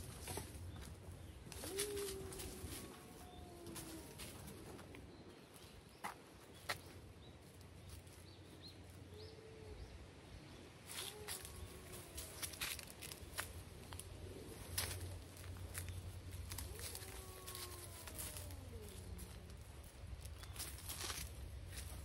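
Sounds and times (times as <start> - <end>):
leaves and twigs crackling: 0.0 - 8.4, 10.8 - 22.0
dove cooing: 1.5 - 4.5.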